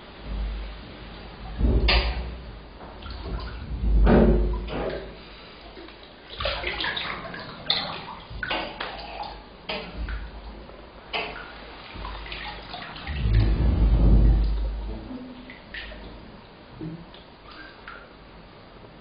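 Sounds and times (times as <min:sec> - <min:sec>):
deep rumbles: 0:00.0 - 0:05.2, 0:13.0 - 0:17.1
bath water splashing: 0:00.0 - 0:16.5.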